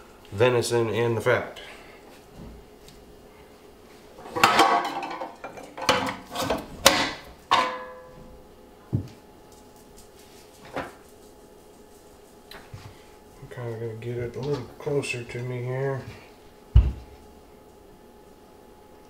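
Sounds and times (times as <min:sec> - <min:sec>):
low thump: 0:16.7 - 0:17.1.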